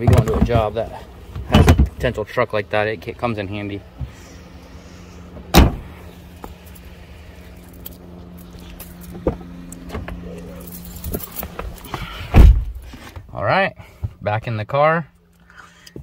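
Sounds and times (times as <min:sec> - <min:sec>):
car engine idling: 0:00.0 - 0:14.3
car door slamming: 0:05.5 - 0:05.9, 0:12.2 - 0:12.8.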